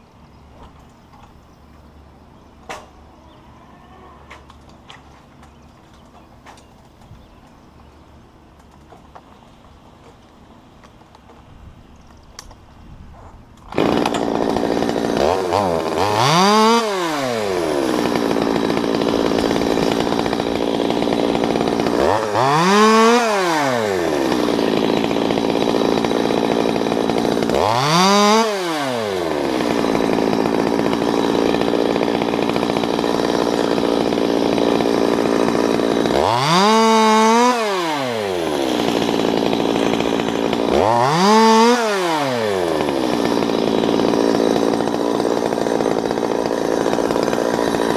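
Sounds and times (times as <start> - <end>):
chainsaw revving and cutting limbs: 13.6 - 47.9.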